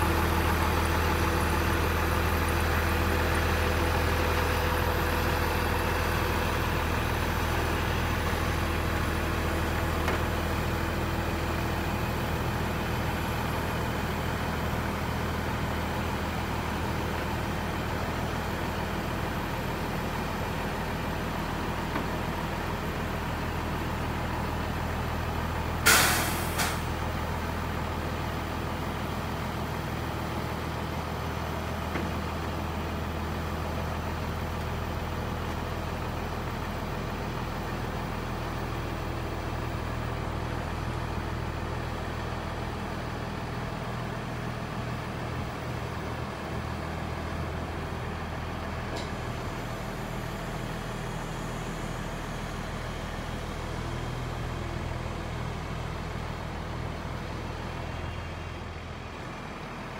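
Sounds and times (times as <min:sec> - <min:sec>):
diesel truck engine humming: 0:00.0 - 0:59.9
short loud hiss: 0:25.8 - 0:26.9.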